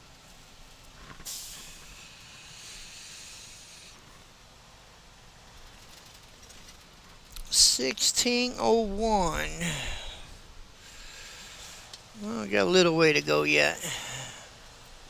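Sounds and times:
compressed air hiss: 0:01.1 - 0:04.0.

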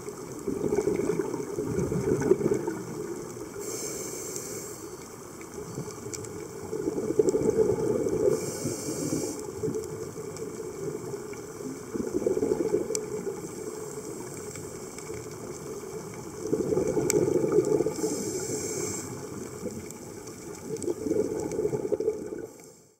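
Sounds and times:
exhaled bubbles rushing underwater: 0:00.0 - 0:03.8, 0:05.2 - 0:22.8
regulator inhalation hiss: 0:03.5 - 0:05.1, 0:08.3 - 0:09.5, 0:17.9 - 0:19.4.

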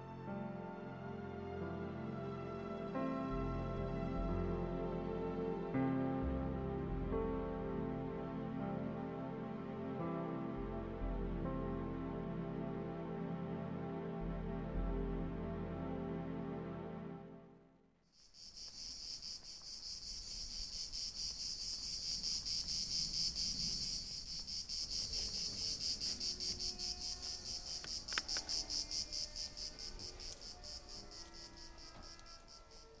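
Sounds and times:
music: 0:00.0 - 0:18.1, 0:20.4 - 0:33.0
cricket trilling: 0:18.2 - 0:33.0.

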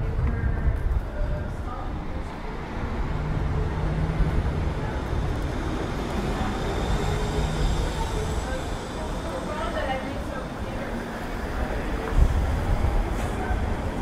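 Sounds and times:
faint voices: 0:00.0 - 0:14.0
traffic rumble: 0:00.0 - 0:14.0.

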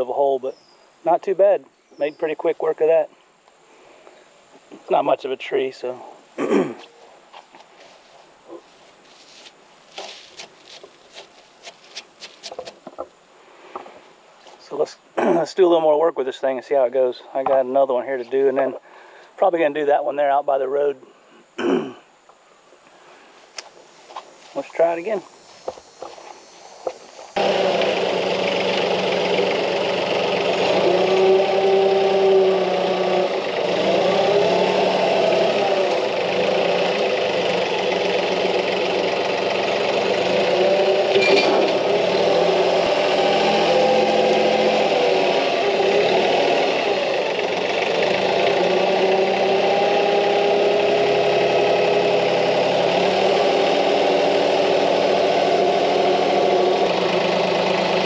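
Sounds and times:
tractor diesel engine running: 0:26.8 - 0:58.0.

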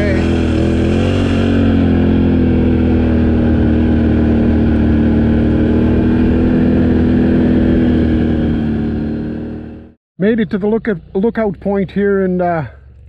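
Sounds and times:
off-road vehicle engine running: 0:00.0 - 0:13.0
road and wind noise: 0:00.0 - 0:13.0.

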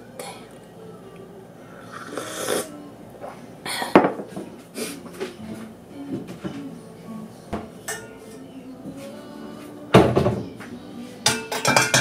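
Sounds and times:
dishware clinking and knocking: 0:10.0 - 0:10.5, 0:11.2 - 0:12.0.

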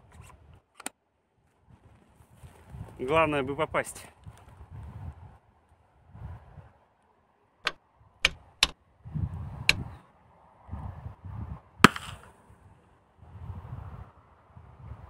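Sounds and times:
sharp clicks: 0:07.6 - 0:08.8
gas shell firing pop: 0:11.8 - 0:12.3.

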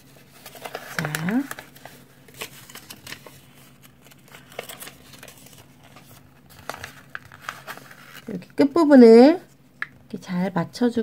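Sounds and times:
paper rustling and crinkling: 0:00.0 - 0:08.5.

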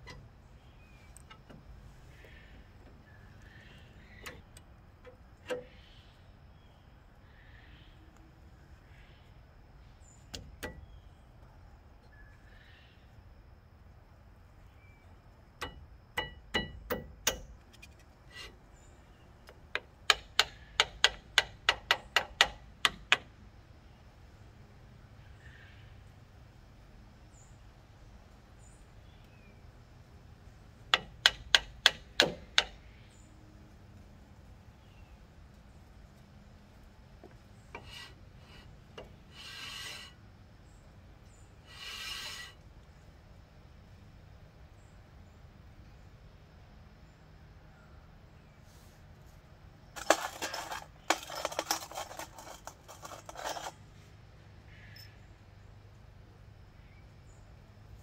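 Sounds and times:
screwdriver tapping on metal: 0:15.6 - 0:17.8, 0:19.7 - 0:23.2, 0:30.9 - 0:32.8
metal scraping on brake rotor: 0:18.2 - 0:18.9, 0:37.6 - 0:40.2, 0:41.6 - 0:42.6, 0:50.0 - 0:54.1.

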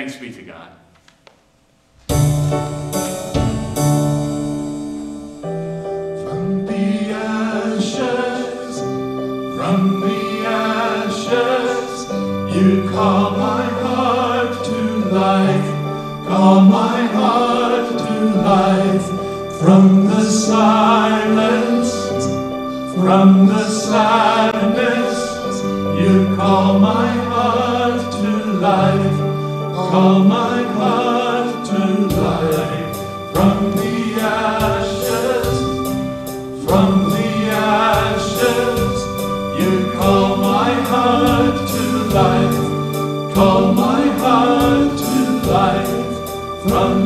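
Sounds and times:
bass line: 0:02.0 - 0:05.0, 0:32.1 - 0:47.0
keyboard chords: 0:02.0 - 0:47.0
voices singing: 0:06.2 - 0:47.0.

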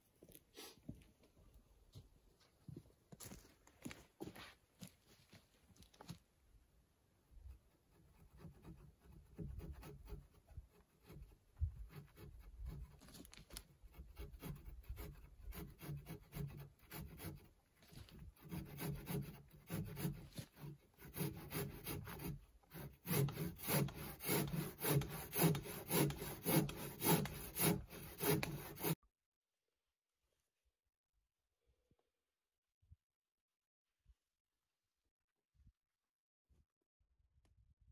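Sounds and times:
hand tool rasping on wood: 0:07.8 - 0:29.0.

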